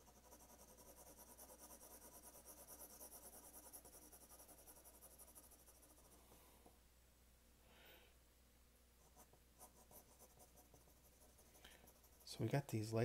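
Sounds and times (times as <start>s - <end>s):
pencil scratching on paper: 0.0s - 6.2s, 9.0s - 12.7s.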